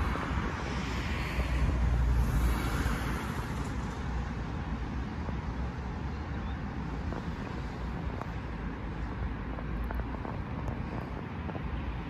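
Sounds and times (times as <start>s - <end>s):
street traffic hum: 0.0s - 12.0s
wind buffeting microphone: 6.8s - 12.0s.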